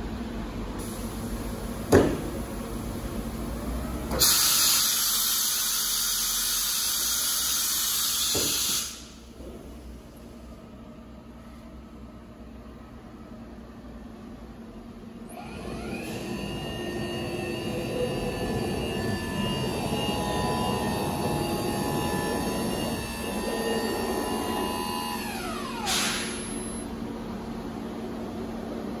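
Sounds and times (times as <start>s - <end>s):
steady machine hum: 9.0s - 29.0s
spindle motor whining: 15.3s - 26.8s.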